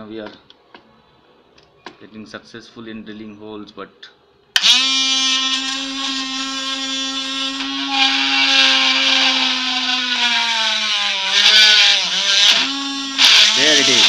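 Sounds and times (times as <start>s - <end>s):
drill bit grinding plastic disc: 4.6s - 14.0s
small motor whining: 4.6s - 14.0s.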